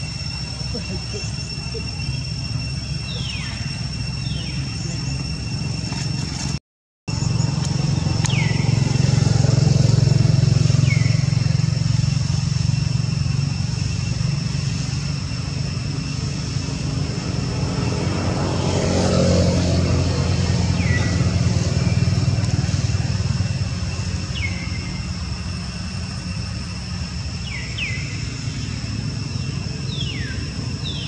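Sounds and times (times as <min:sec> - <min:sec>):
high insect drone: 0:00.0 - 0:31.0
vehicle engine droning: 0:00.0 - 0:31.0.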